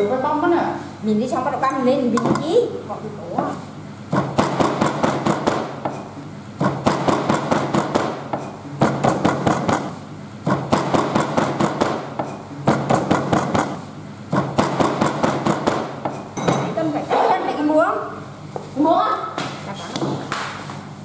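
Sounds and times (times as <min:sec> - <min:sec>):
knife chopping on wooden board: 0:04.2 - 0:06.0, 0:06.6 - 0:16.2.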